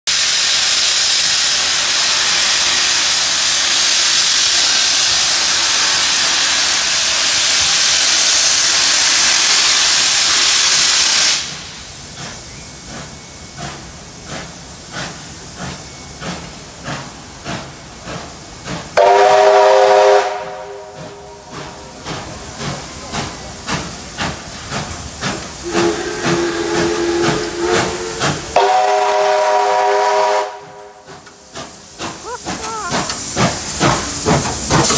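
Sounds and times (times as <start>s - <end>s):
steam venting hiss: 0.1s - 34.9s
locomotive exhaust beats: 11.4s - 34.9s
steam whistle chord: 19.0s - 21.6s, 25.6s - 31.0s.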